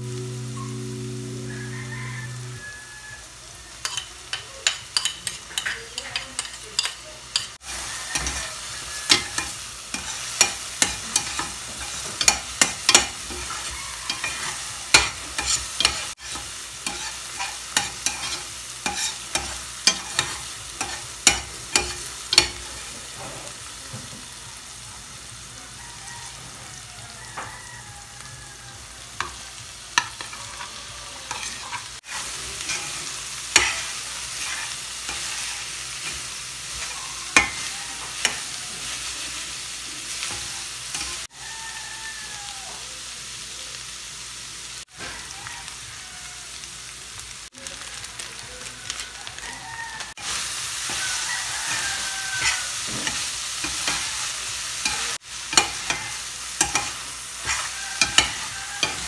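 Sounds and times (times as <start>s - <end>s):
onion and tomato sizzling in pan: 0.0s - 59.0s
metal spatula scraping a pan: 3.8s - 23.6s, 30.0s - 39.3s, 50.2s - 59.0s.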